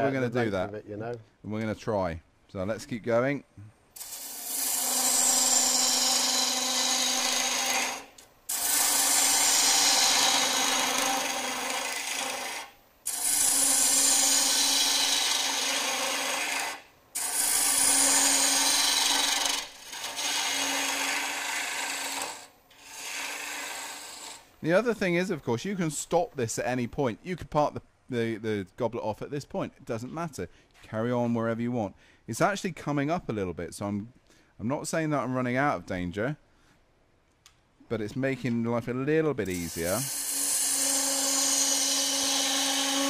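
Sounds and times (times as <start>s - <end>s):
gouge shaving wood on lathe: 4.0s - 24.4s, 39.5s - 43.0s.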